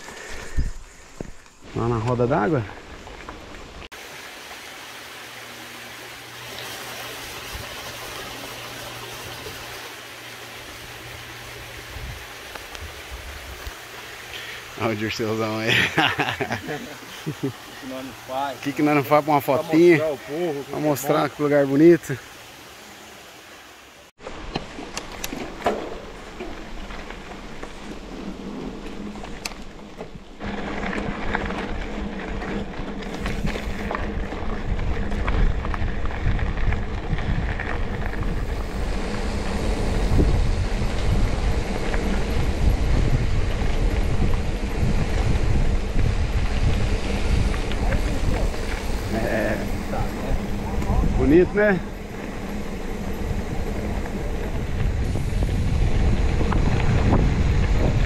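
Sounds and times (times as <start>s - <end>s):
wind rumble on microphone: 0.0s - 2.0s, 10.8s - 13.8s, 25.2s - 58.0s
bike tyres crunching on gravel: 0.0s - 22.2s, 24.2s - 58.0s
brook running over rocks: 0.0s - 55.6s
water splashing off water wheel: 3.9s - 14.2s
bike clicking and rattling: 24.2s - 58.0s.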